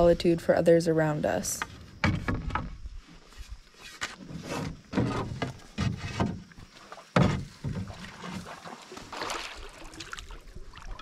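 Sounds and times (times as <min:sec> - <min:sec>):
paddle knocking against canoe: 0:04.0 - 0:09.4
paddle splashing in water: 0:04.2 - 0:11.0
water sloshing: 0:04.2 - 0:11.0.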